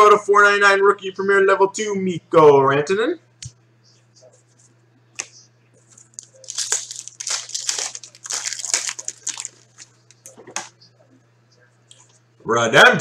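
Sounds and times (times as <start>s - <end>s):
low steady hum: 0.0s - 13.0s
foil wrapper crinkling: 5.9s - 10.4s.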